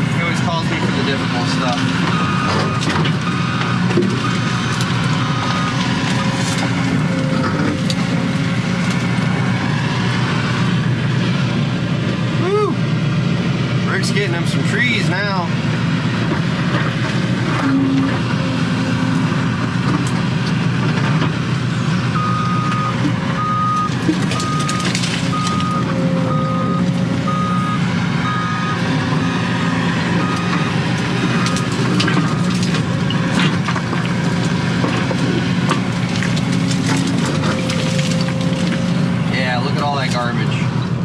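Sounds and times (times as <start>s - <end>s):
excavator diesel engine running: 0.0s - 41.0s
reversing alarm beeping: 1.4s - 5.9s, 7.0s - 8.3s, 17.7s - 19.3s, 22.2s - 33.2s, 37.5s - 38.9s.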